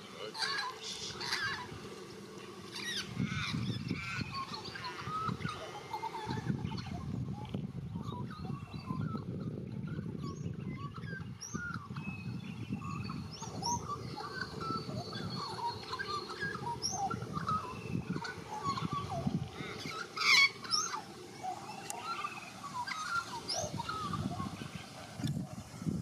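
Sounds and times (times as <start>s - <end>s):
magpie warbling: 0.3s - 1.8s.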